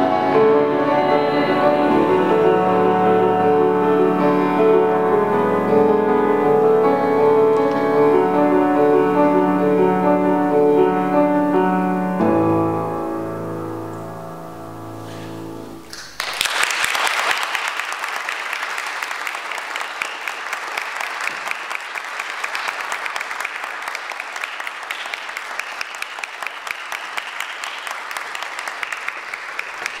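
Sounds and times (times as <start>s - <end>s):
audience applauding: 0.0s - 5.2s, 15.8s - 30.0s
piano chord: 0.0s - 15.9s.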